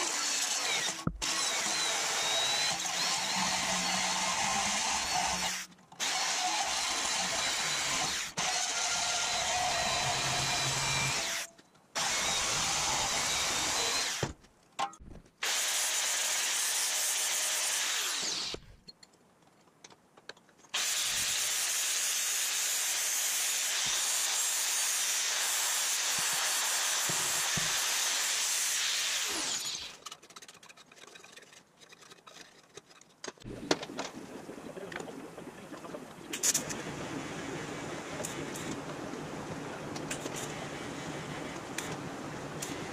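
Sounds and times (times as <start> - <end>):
bandsaw cutting metal: 0.0 - 14.3, 15.4 - 18.7, 20.8 - 30.2
angle grinder grinding steel: 20.8 - 30.2.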